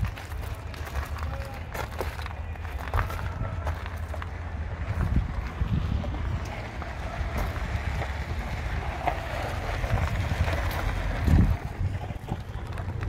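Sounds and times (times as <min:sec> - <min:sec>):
wind buffeting microphone: 0:02.4 - 0:13.0.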